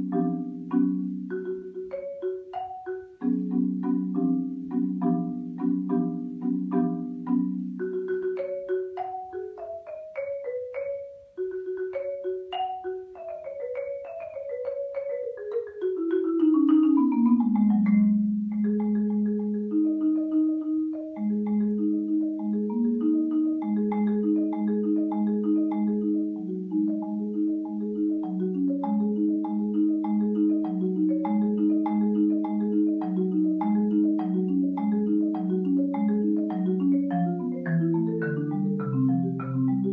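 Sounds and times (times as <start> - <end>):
marimba played with mallets: 0.0 - 39.9.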